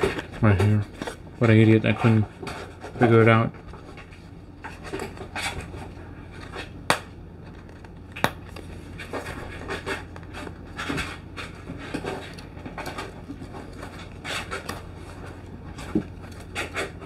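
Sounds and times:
fingernails scratching paperboard: 0:09.0 - 0:17.0.

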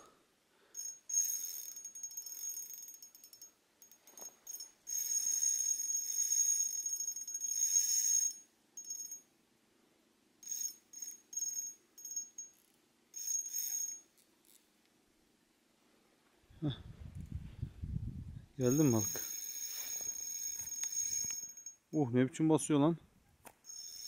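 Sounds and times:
fishing reel whirring: 0:00.8 - 0:03.1, 0:04.5 - 0:08.4, 0:13.2 - 0:14.0, 0:18.7 - 0:21.7, 0:23.7 - 0:24.0.

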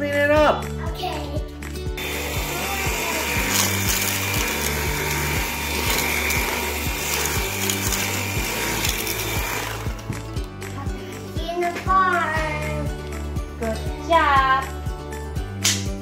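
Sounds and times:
background music with beat: 0:00.0 - 0:16.0
vacuum cleaner running: 0:02.0 - 0:10.4.

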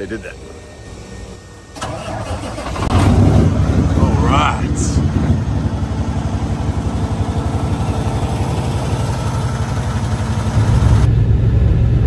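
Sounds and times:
diesel truck engine idling: 0:00.0 - 0:12.0
deep drone: 0:00.4 - 0:12.0.

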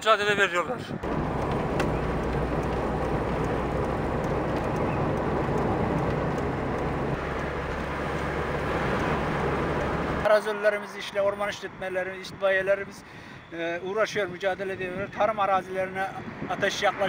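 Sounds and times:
road noise: 0:00.0 - 0:17.0
car engine hum: 0:01.0 - 0:10.3.

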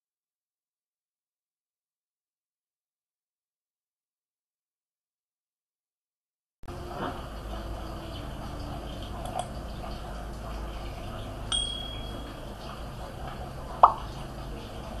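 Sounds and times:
low steady hum: 0:06.6 - 0:15.0
bright bell-like ding: 0:11.5 - 0:12.2.

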